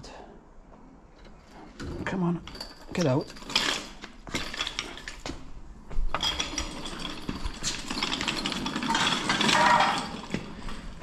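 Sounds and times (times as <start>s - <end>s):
hydraulic jack clanking and rattling: 1.7s - 5.4s, 6.1s - 11.0s.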